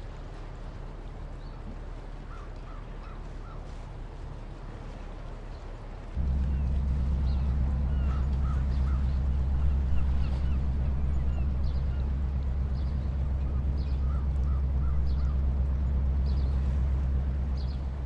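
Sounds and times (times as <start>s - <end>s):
gulls calling: 6.2s - 18.0s
loud low rumble: 6.2s - 18.0s.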